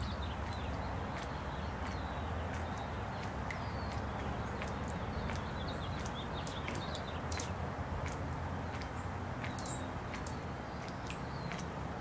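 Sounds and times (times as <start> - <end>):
sharp ticks: 2.6 - 11.7
bird chirps: 9.4 - 11.6.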